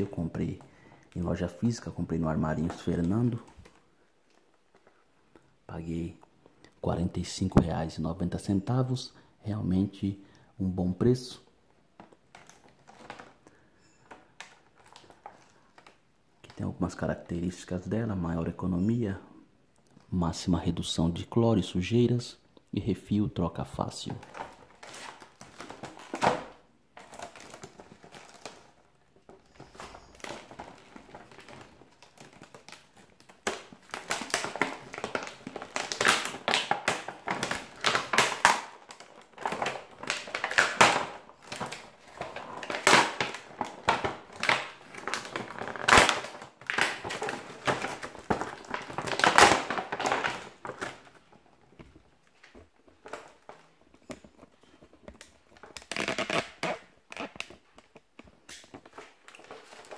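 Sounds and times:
plastic blister pack crackling: 12.0 - 16.8, 23.8 - 59.9.

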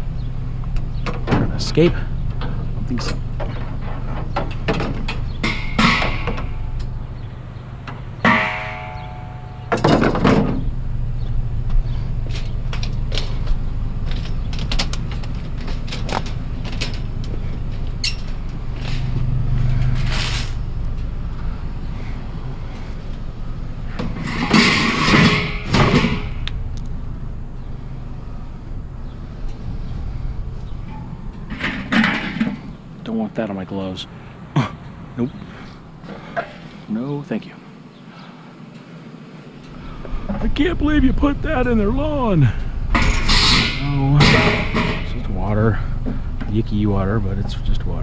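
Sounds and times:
steady low hum: 0.0 - 48.0
objects knocking and clattering: 2.3 - 6.9, 7.9 - 10.7, 23.9 - 26.5, 30.9 - 32.7.

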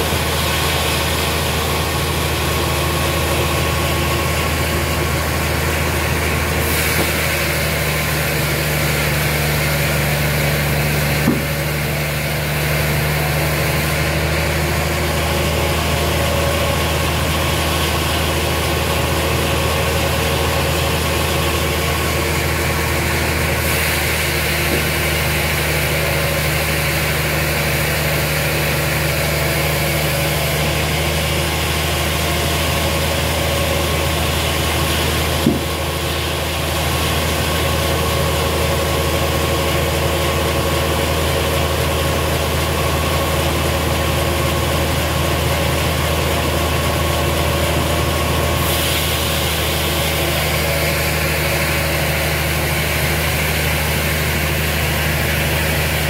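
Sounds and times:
engine idling: 0.0 - 56.0
short knock: 11.2 - 11.7, 35.4 - 35.8.

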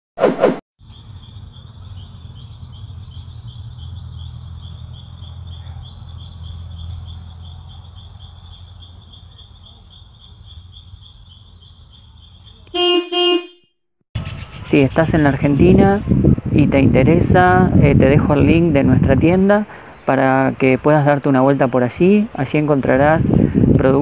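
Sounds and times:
crickets chirping: 0.8 - 13.0.

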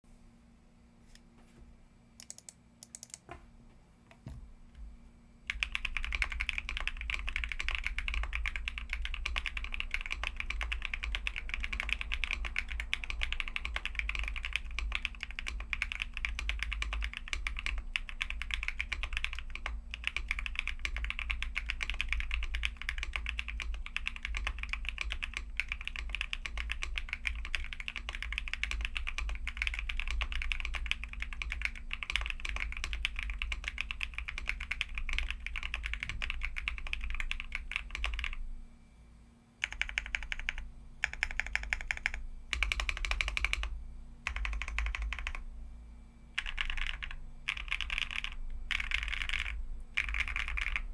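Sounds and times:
light keyboard clicks: 2.2 - 3.3
mechanical keyboard typing: 2.2 - 3.3, 5.5 - 38.4, 39.6 - 43.7, 44.3 - 45.4, 46.4 - 50.9.

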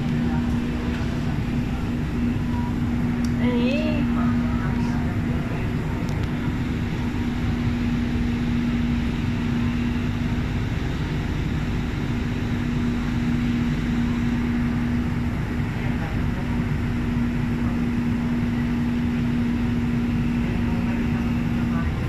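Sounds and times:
monorail rumble and hum: 0.0 - 22.0.

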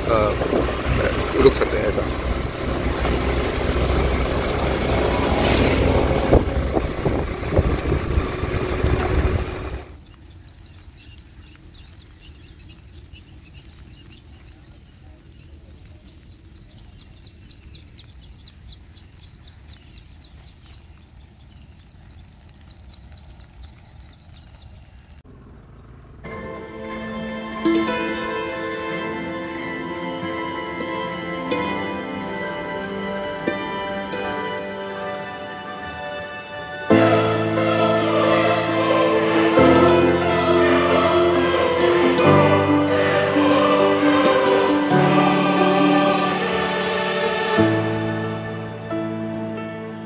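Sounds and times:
scooter road noise: 0.0 - 50.0
wind on microphone: 5.0 - 9.8
bird chirping rapidly: 10.0 - 24.8.

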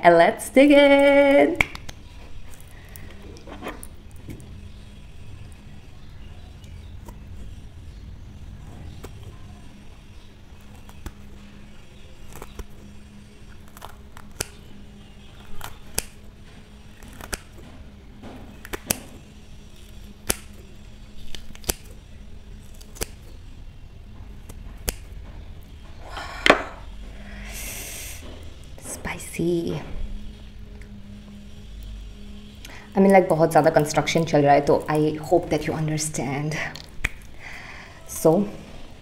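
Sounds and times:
scissors snipping chili: 12.2 - 12.8, 13.5 - 14.7, 15.3 - 16.2, 17.0 - 17.6, 18.6 - 20.6, 21.2 - 22.0, 22.6 - 23.4, 24.5 - 25.1.

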